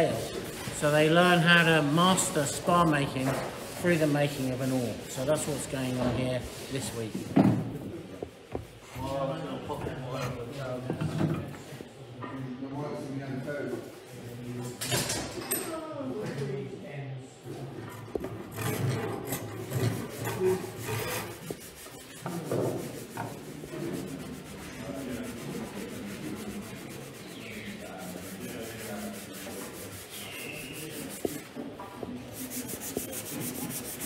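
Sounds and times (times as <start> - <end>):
rasping and rubbing on wood: 18.5 - 31.5, 32.3 - 34.0.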